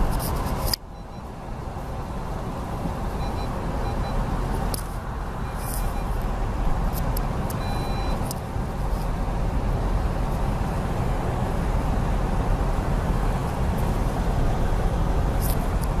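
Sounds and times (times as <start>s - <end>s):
brief beep: 0.9s - 1.3s, 3.2s - 4.3s, 5.4s - 6.2s, 7.5s - 8.2s.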